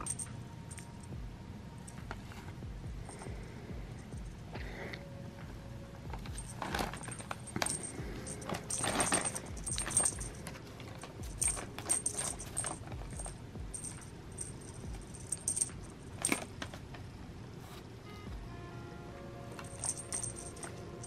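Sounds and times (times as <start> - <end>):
small bell jingling: 0.0 - 1.2, 6.2 - 16.5, 19.5 - 21.0.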